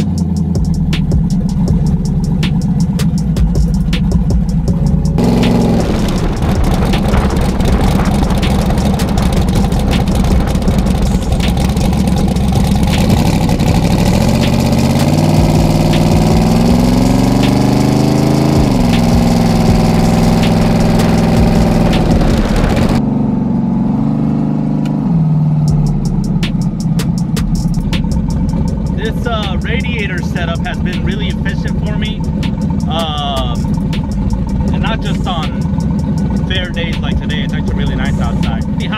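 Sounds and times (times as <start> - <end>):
car engine running: 0.0 - 38.9
wind noise: 5.8 - 11.6.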